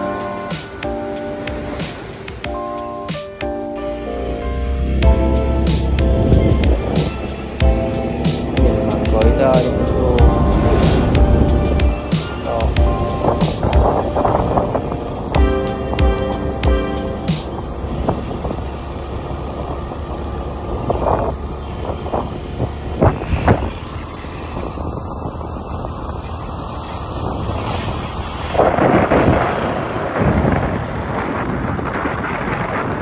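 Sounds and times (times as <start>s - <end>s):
tyres on road: 0.0s - 33.0s
wind rushing over microphone: 0.0s - 33.0s
motorcycle engine running: 5.0s - 14.3s.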